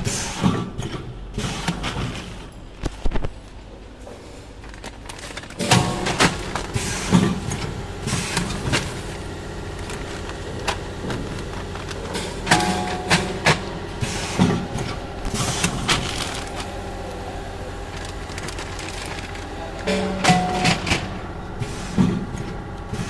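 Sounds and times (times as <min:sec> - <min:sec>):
packing machine humming: 0:00.0 - 0:23.0
plastic bags crinkling: 0:04.3 - 0:07.5, 0:08.6 - 0:13.8, 0:14.5 - 0:21.3.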